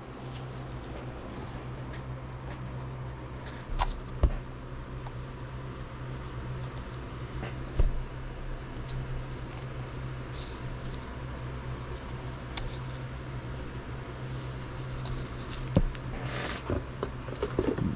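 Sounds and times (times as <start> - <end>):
steady low hum: 0.0 - 17.9.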